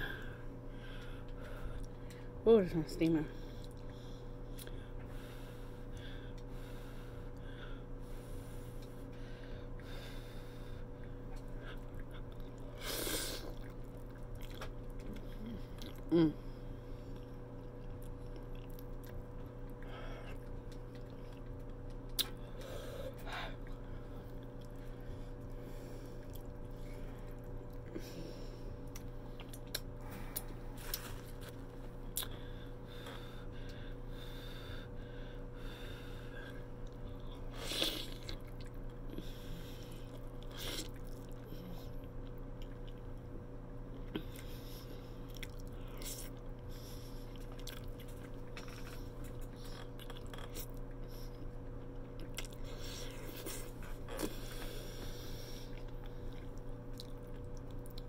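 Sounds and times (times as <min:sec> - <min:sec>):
low electrical hum: 0:00.0 - 0:58.0
close-up chewing and biting: 0:13.4 - 0:16.1, 0:17.1 - 0:28.0, 0:36.5 - 0:43.2, 0:45.2 - 0:58.0.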